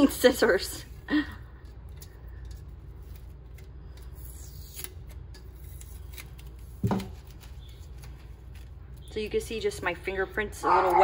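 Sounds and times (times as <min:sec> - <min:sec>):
stencil peeling crackles: 0:01.8 - 0:09.4.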